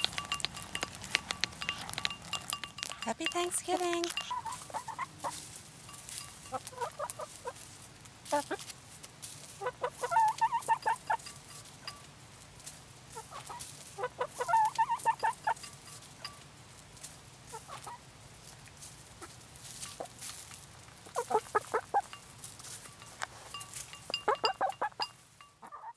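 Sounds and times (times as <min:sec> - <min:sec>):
beaks pecking at a dish: 0:00.0 - 0:07.7, 0:09.6 - 0:12.1, 0:13.1 - 0:18.0, 0:18.6 - 0:25.9
hens clucking: 0:03.0 - 0:05.4, 0:06.5 - 0:07.6, 0:08.3 - 0:08.7, 0:09.6 - 0:11.3, 0:13.2 - 0:15.6, 0:17.5 - 0:18.0, 0:21.0 - 0:22.1, 0:24.2 - 0:25.9.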